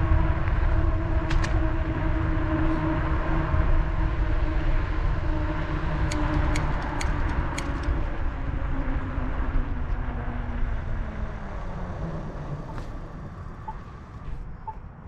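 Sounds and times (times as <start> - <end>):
wind and road rumble: 0.0 - 15.0
sharp ticks: 6.0 - 8.0.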